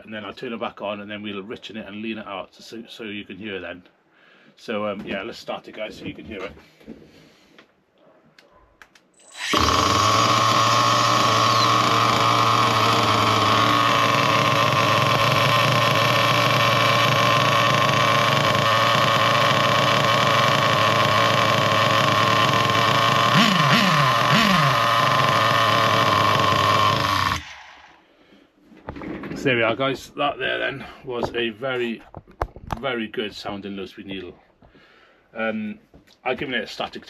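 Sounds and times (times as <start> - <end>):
remote starter whirring: 9.2 - 28.0
engine throttle blips: 9.3 - 27.9
model car engine idling: 9.4 - 28.0.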